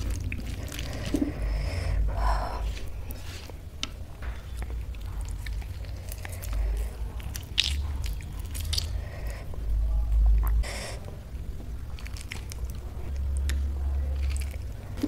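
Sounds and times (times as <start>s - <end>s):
chewing: 0.0s - 15.0s
wet clicks and crackles: 3.8s - 9.4s, 11.6s - 15.0s.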